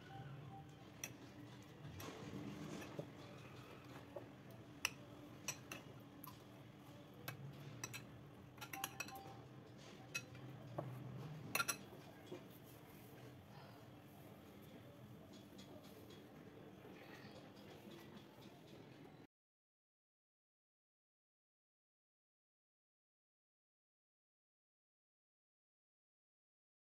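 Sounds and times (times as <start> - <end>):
spoon clinking against a bowl: 4.8 - 6.4, 7.2 - 9.4, 10.1 - 10.4, 11.5 - 11.9.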